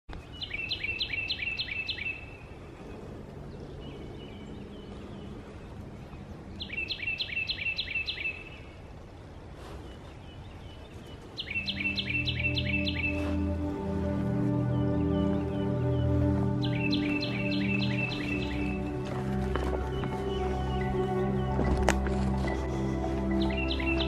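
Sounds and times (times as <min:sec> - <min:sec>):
faint outdoor rumble: 0:00.1 - 0:24.0
songbird singing: 0:00.1 - 0:24.0
soft music: 0:11.2 - 0:24.0.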